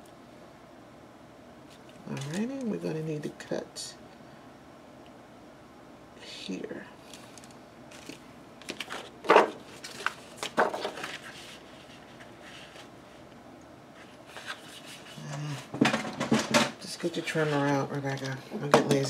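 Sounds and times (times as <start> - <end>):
paper rustling: 7.1 - 13.2, 14.0 - 15.6.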